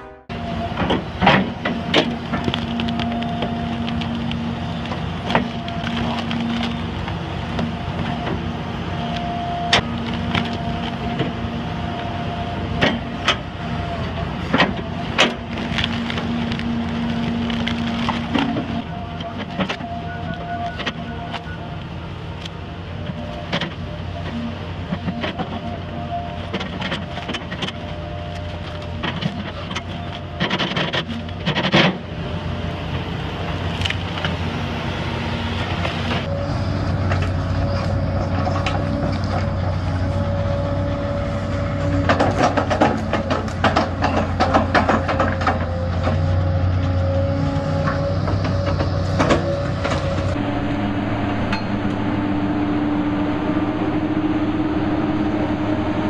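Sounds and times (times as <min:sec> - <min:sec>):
excavator diesel engines: 0:00.0 - 0:56.0
stumps cracking and knocking: 0:00.9 - 0:08.4, 0:14.5 - 0:19.8.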